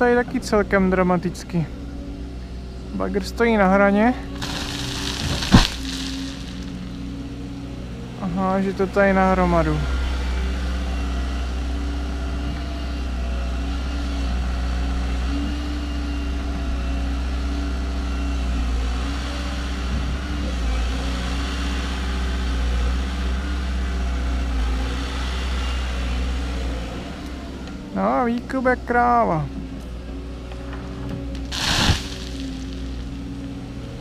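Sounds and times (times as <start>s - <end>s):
excavator diesel engine running: 0.0s - 34.0s.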